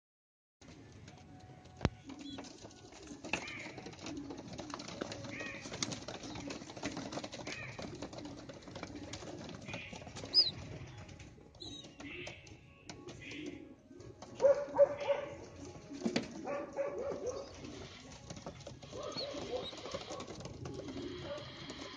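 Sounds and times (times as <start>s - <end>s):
pigeons cooing: 2.0s - 21.9s
pigeon wing flaps: 2.1s - 10.9s, 17.2s - 21.9s.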